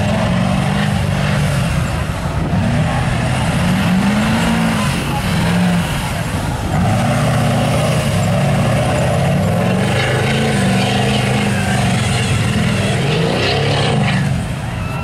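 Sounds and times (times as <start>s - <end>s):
diesel truck engine revving: 0.0s - 15.0s.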